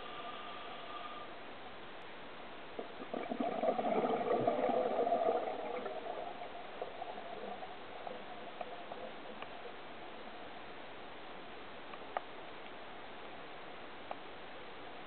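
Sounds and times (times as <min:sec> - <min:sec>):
bubbles gurgling underwater: 0:02.8 - 0:09.0
faint clicks: 0:08.6 - 0:09.6.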